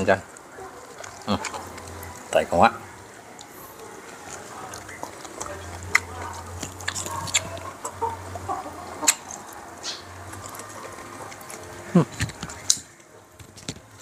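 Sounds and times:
chickens clucking: 0.0s - 14.0s
crab shell snapping and cracking: 12.2s - 13.9s.

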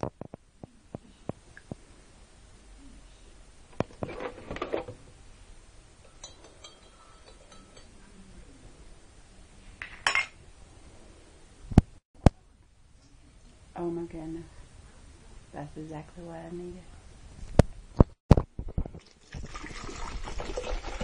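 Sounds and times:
teaspoon clinking against mug: 6.0s - 7.9s.

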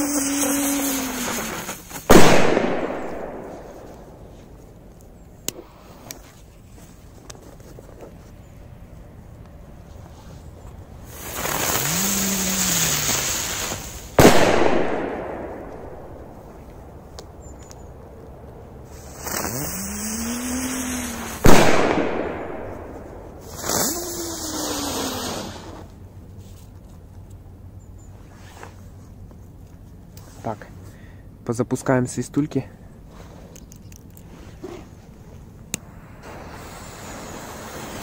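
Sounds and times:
firecracker bang: 0.0s - 4.2s, 12.6s - 16.3s, 20.5s - 25.8s
firecrackers fizzing: 0.0s - 4.2s, 11.0s - 16.2s, 18.9s - 25.9s, 35.8s - 38.0s.

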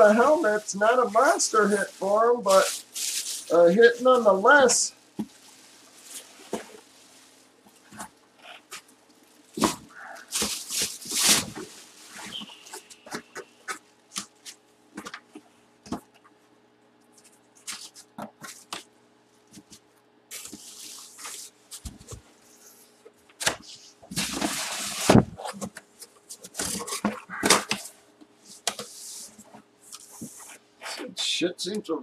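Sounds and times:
cardboard scraping and rustling: 0.0s - 15.4s, 19.6s - 22.7s, 23.4s - 27.9s
faint steady hum: 0.0s - 32.0s.

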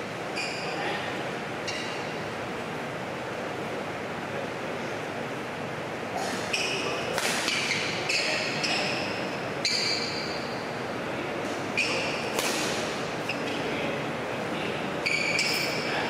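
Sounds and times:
sports hall background noise: 0.0s - 16.0s
shoes squeaking on court floor: 0.3s - 1.0s, 1.6s - 2.2s, 6.2s - 10.6s, 11.5s - 12.6s, 13.2s - 13.7s, 15.0s - 16.0s
racket striking shuttlecock: 7.1s - 7.8s, 12.3s - 12.9s.

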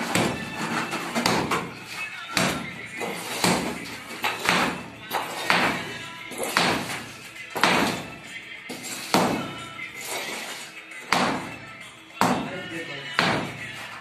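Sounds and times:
hammers striking concrete: 0.0s - 14.0s.

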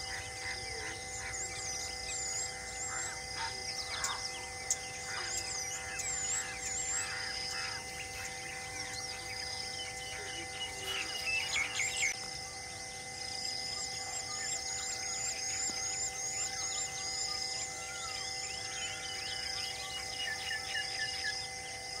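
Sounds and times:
birds whistling: 0.0s - 22.0s
insect hiss: 0.0s - 22.0s.

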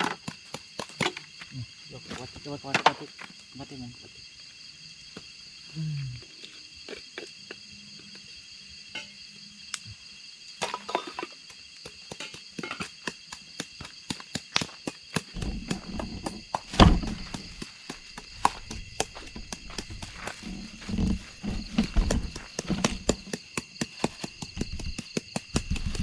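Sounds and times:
night insects chirring: 0.0s - 26.0s
footsteps: 14.6s - 23.4s
loud thump: 15.4s - 17.4s.

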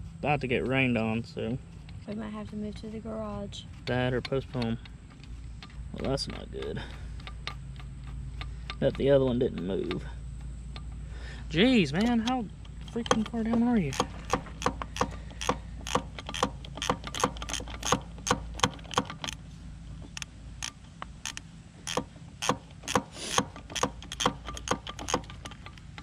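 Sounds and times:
ratchet wrench clicking: 11.8s - 19.4s, 20.1s - 26.0s.

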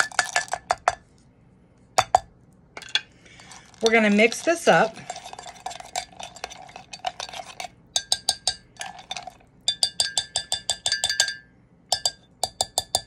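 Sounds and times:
spoon scraping in mug: 2.8s - 11.3s
spoon clinking against mug: 5.0s - 13.0s.

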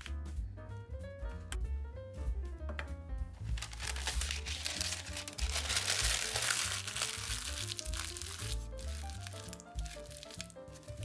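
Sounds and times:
background music: 0.0s - 11.0s
crinkling rustling noise: 3.4s - 11.0s.

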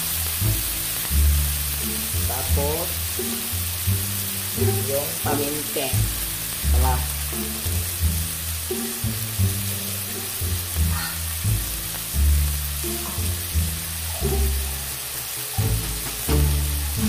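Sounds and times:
onions sizzling in wok: 0.0s - 17.0s
music with stepping bass line: 15.6s - 17.0s.

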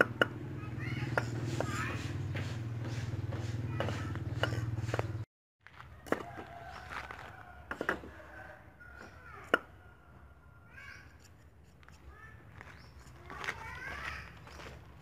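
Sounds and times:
cleaver chopping on wooden block: 0.0s - 0.4s, 1.0s - 5.2s.

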